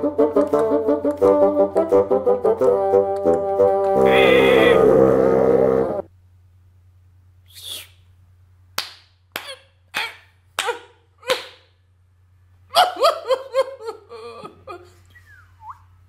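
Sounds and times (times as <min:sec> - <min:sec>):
sharp slaps: 0:08.8 - 0:11.8.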